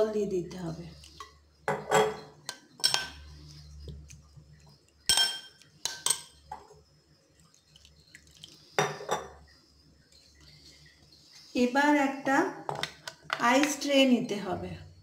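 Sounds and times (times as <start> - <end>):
spoon clinking against glass bowl: 1.7 - 3.2, 5.1 - 6.4.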